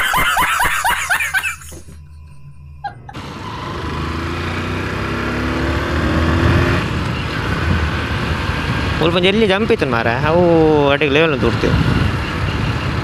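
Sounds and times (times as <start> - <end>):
man laughing loudly: 0.0 - 3.2
road and wind rush: 1.2 - 13.0
motorcycle engine accelerating: 2.6 - 10.7.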